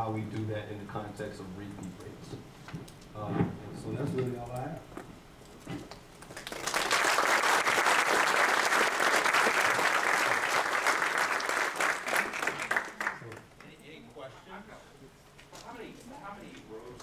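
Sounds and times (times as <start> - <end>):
audience applauding: 6.2 - 13.5.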